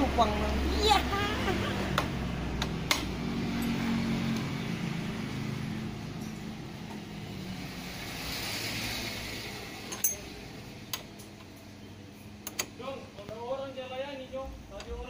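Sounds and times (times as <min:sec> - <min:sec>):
spanner clinking on metal: 0:09.8 - 0:10.3.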